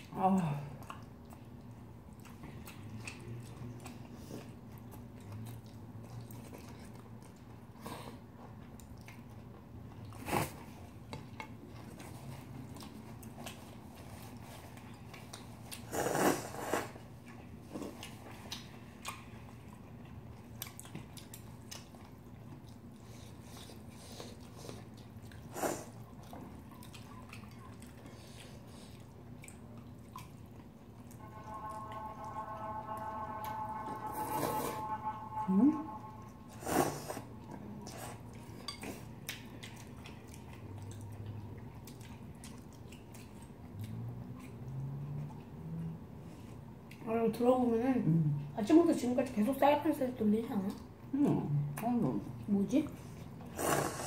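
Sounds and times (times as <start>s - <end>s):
quiet chewing: 0.0s - 34.8s, 36.2s - 47.1s
low steady hum: 0.0s - 54.0s
noodle slurping: 53.5s - 54.0s
nose blowing into tissue: 53.6s - 54.0s.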